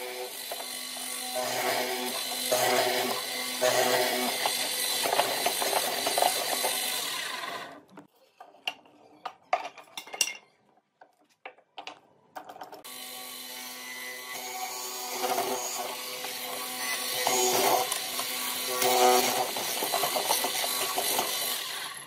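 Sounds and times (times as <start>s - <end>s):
power tool running on wood: 0.0s - 7.8s, 12.8s - 22.0s.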